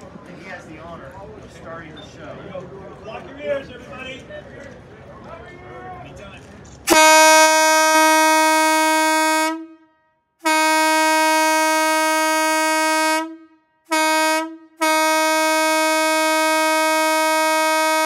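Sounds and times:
locomotive air horn blasts: 0:06.9 - 0:18.0.

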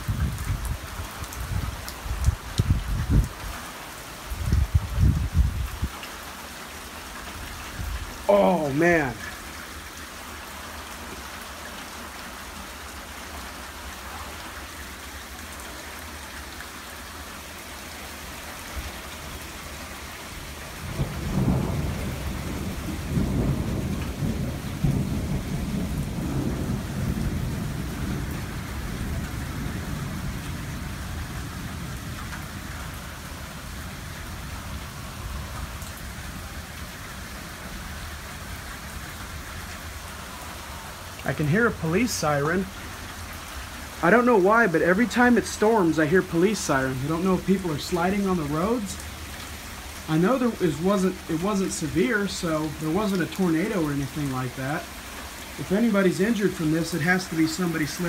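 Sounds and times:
heavy rain: 0:00.0 - 0:58.0
thunder rolling: 0:20.8 - 0:32.0.

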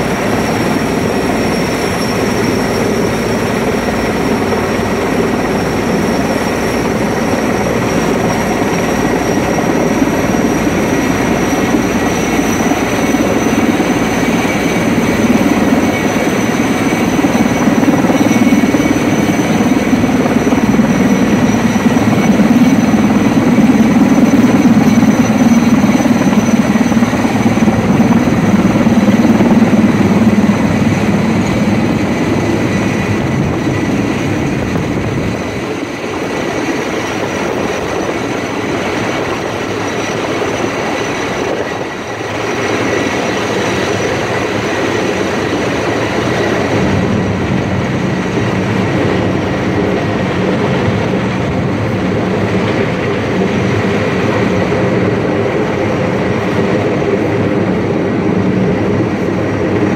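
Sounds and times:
helicopter rotor noise: 0:00.0 - 0:59.9
high turbine whine: 0:00.0 - 0:59.9.

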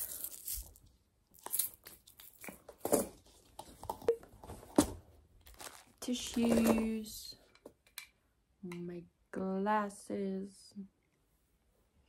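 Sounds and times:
cloth bag rustling: 0:05.5 - 0:06.8.

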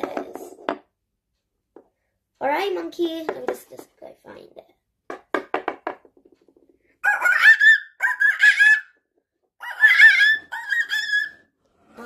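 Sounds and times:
high warbling monkey-like chatter: 0:07.0 - 0:09.0, 0:09.6 - 0:11.5.

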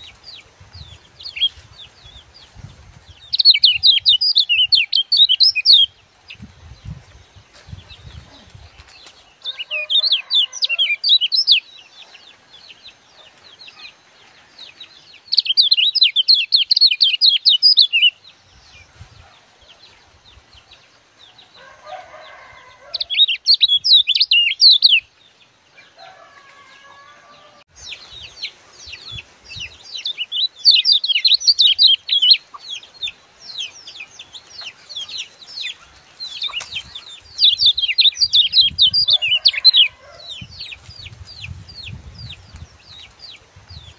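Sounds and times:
bird singing chattering song: 0:00.0 - 0:21.1, 0:22.9 - 0:25.4, 0:27.8 - 0:43.9.

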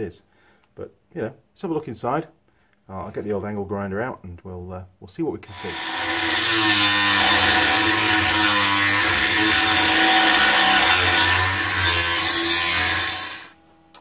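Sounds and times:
angle grinder cutting metal: 0:05.5 - 0:13.6.

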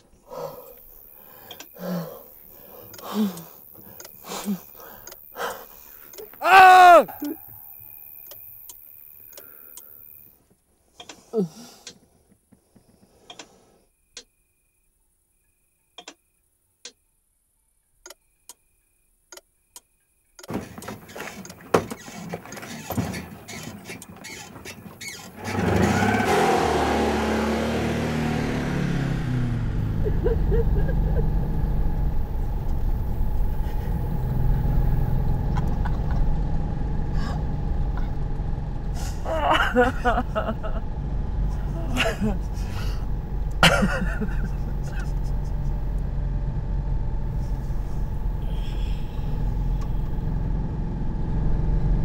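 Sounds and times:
scattered clicks: 0:00.7 - 0:01.8, 0:02.8 - 0:04.2
knocking and rustling: 0:20.4 - 0:25.4
car engine starting: 0:20.5 - 0:52.0.

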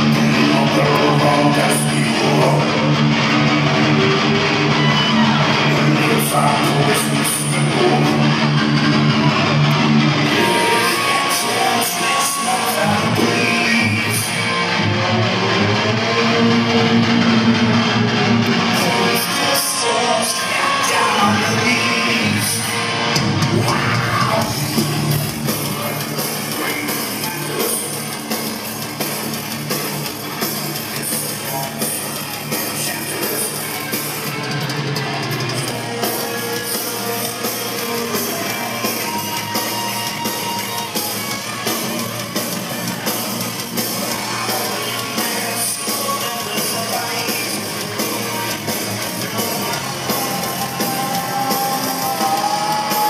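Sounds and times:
bass guitar: 0:00.0 - 0:53.0
distorted electric guitars: 0:00.0 - 0:53.0
drum kit: 0:00.0 - 0:53.0.

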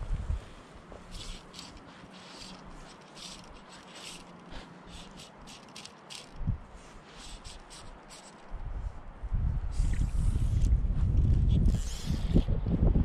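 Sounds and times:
fly line swishing through guides: 0:00.9 - 0:08.8, 0:09.7 - 0:12.7.

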